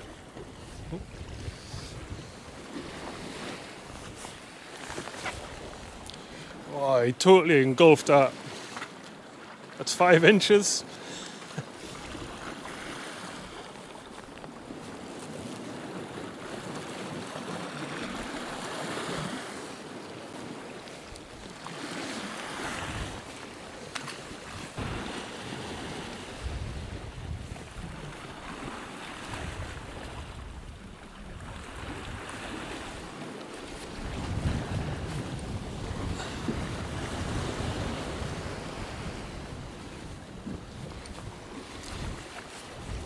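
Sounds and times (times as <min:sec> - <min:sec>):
wind buffeting microphone: 0:00.0 - 0:06.1, 0:22.6 - 0:23.4, 0:24.3 - 0:43.0
waves breaking over rocks: 0:00.0 - 0:43.0.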